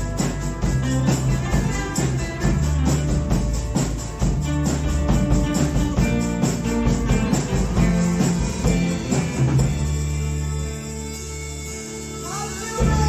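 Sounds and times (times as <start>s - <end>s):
drum kit beat: 0.0s - 11.8s, 12.6s - 13.0s
rock band playing: 0.0s - 13.0s.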